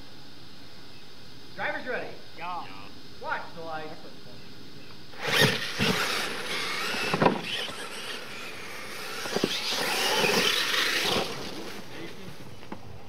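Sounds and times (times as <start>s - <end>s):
rc truck motors whining: 5.1s - 12.6s.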